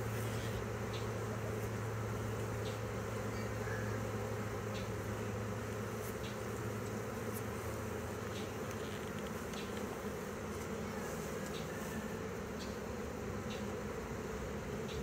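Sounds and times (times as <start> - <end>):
bee swarm buzzing: 0.0 - 15.0
faint ticks: 8.2 - 10.0.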